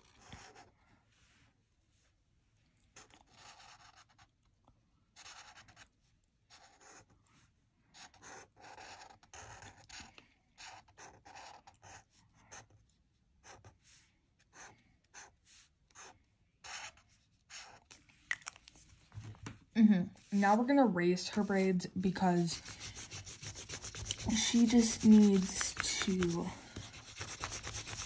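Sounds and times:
marker drawing on paper: 0.2 - 0.7, 3.0 - 4.3, 5.1 - 5.9, 6.5 - 7.1, 7.9 - 18.0, 20.3 - 28.0.

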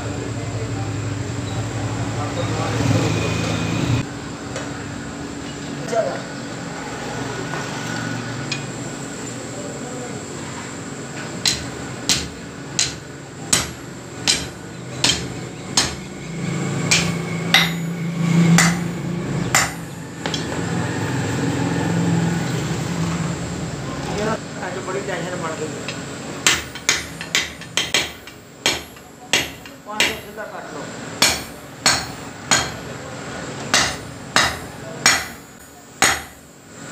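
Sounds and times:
hammer striking hot metal on anvil: 11.4 - 20.5, 25.9 - 30.4, 31.2 - 32.9, 33.7 - 36.5.

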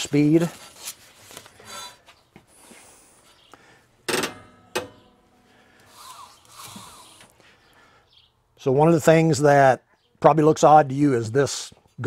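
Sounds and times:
sharp metal clunks: 4.1 - 5.2.

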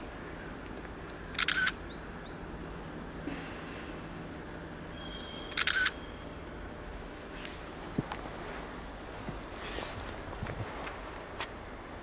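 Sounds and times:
camera shutter clicks: 1.4 - 1.8, 5.5 - 6.0.

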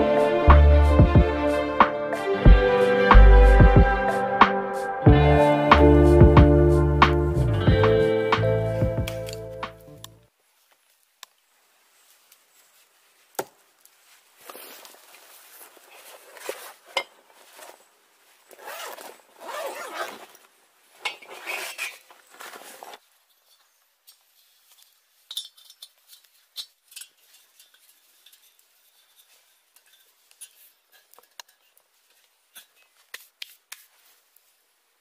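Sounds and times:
canvas bag rustling: 13.6 - 23.3
light metal clinks and taps: 23.3 - 32.9.

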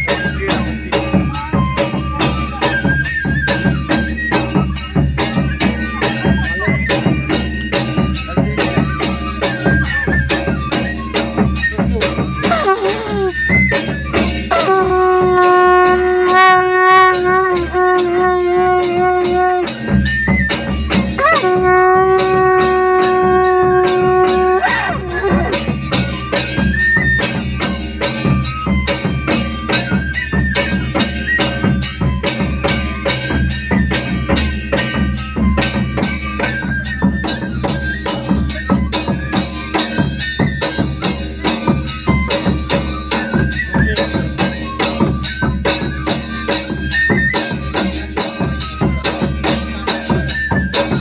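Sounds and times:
fast drum percussion: 0.0 - 51.0
conch shell blowing: 12.5 - 13.5, 14.5 - 20.2, 21.1 - 25.8.

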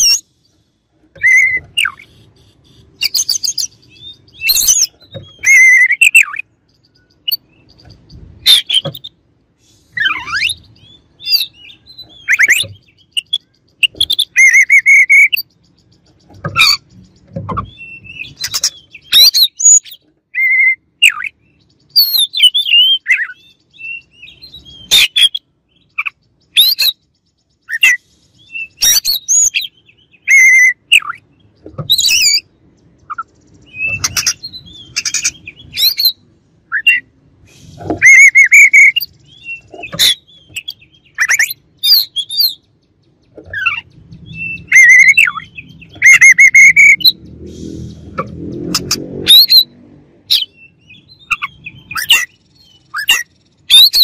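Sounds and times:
bird singing whistled phrases: 1.2 - 7.8, 9.9 - 15.5, 17.6 - 27.0, 27.6 - 31.2, 33.1 - 42.6, 43.6 - 47.2, 50.3 - 54.0.

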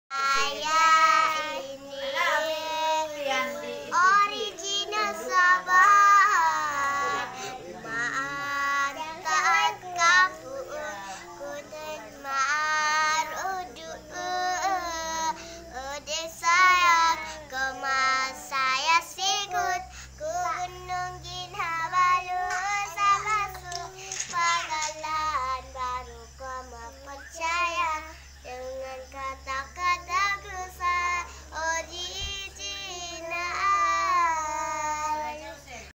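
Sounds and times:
young children singing: 0.1 - 35.8
steady low hum: 0.2 - 35.9.

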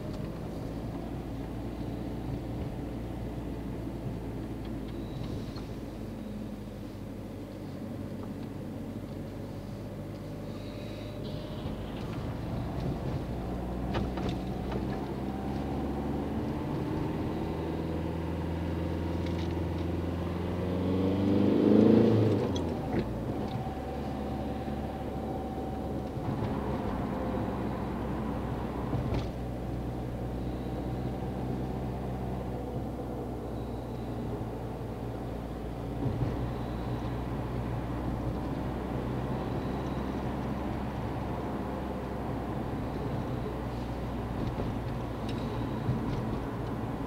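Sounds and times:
car engine and road noise: 0.0 - 47.0
engine revving up in pitch: 20.4 - 22.6.

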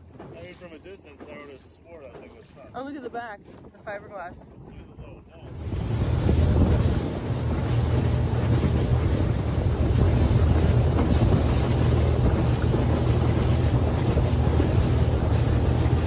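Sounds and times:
outboard motor humming: 0.0 - 16.0
wind buffeting microphone: 0.0 - 16.0
water rushing past: 5.0 - 16.0.

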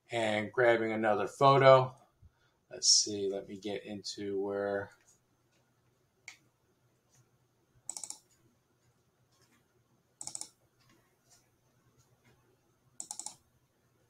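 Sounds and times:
computer mouse clicking: 7.9 - 8.4, 10.2 - 11.0, 13.0 - 13.4.

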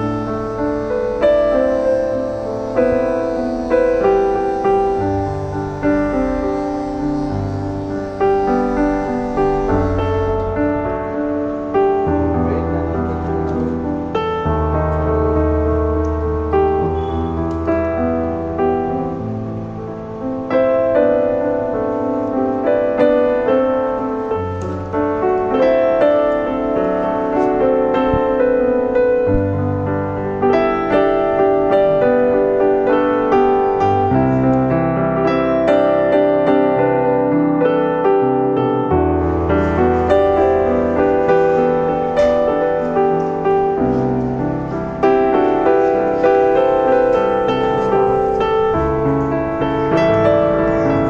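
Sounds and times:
low bass line: 0.0 - 13.9
instrumental piano music: 0.0 - 51.0.

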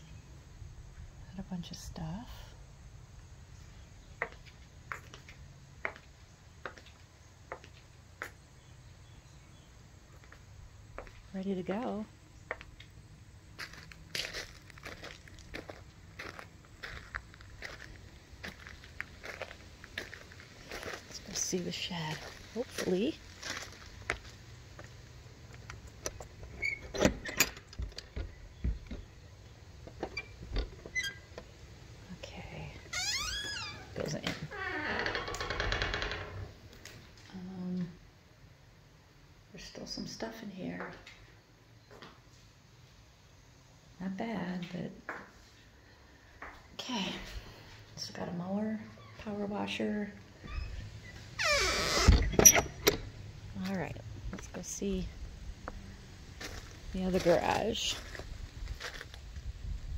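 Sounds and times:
footsteps on concrete: 4.2 - 8.4, 10.1 - 11.2, 13.6 - 21.2, 22.0 - 25.6, 56.4 - 59.2
low steady rumble: 52.1 - 59.9.

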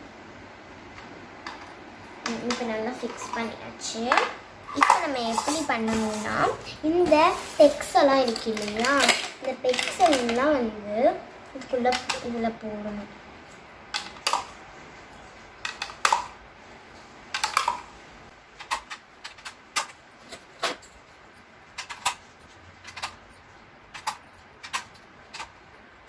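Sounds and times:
plastic pegs clicking into board: 17.3 - 17.8.

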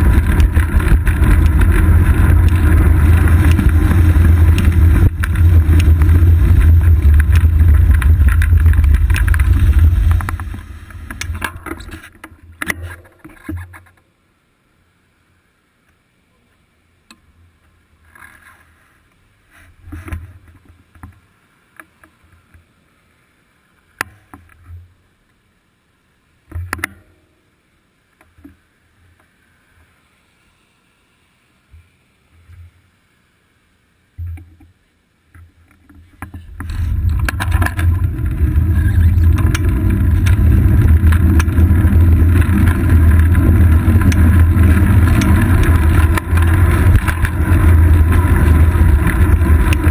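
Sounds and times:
wind rush: 0.0 - 12.0, 36.4 - 49.9
tyre rumble: 0.0 - 12.2, 36.1 - 49.9
camera knocks and rattles: 0.0 - 12.3, 35.8 - 49.9.

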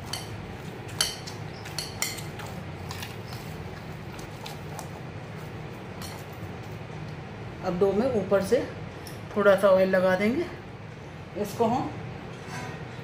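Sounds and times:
dough being kneaded: 0.0 - 7.1
low steady hum: 0.0 - 13.0.

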